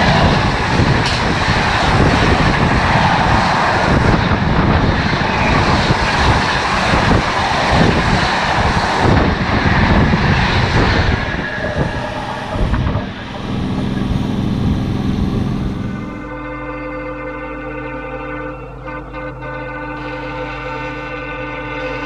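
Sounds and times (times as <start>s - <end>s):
train passing with wheel clatter: 0.0s - 16.6s.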